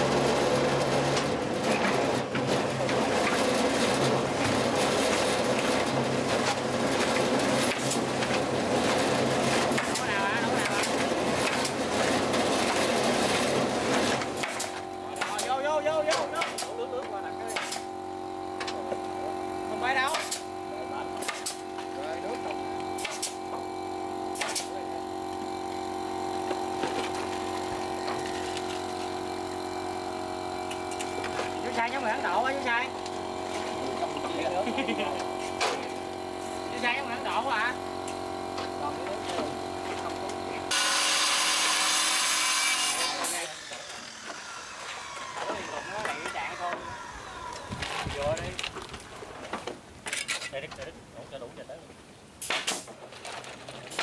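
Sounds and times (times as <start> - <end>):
steady machine hum: 0.0 - 48.8
small engine running: 9.0 - 48.6.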